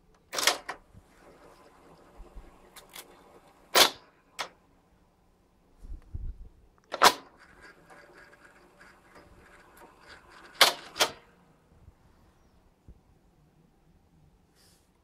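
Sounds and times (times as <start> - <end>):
mechanical ticking and whirring: 7.0 - 11.4.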